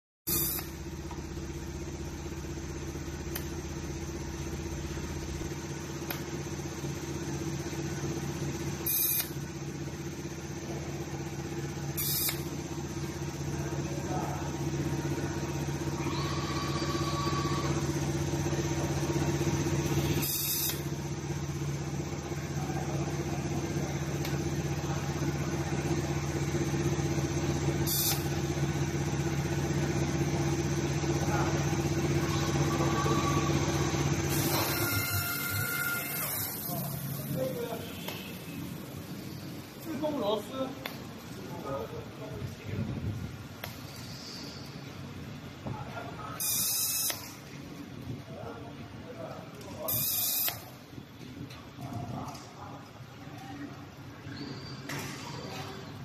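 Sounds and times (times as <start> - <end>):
welding arc buzzing and hissing: 0.3 - 13.8, 14.6 - 39.5, 46.4 - 47.6, 49.9 - 50.8
factory machinery hum: 0.3 - 56.0.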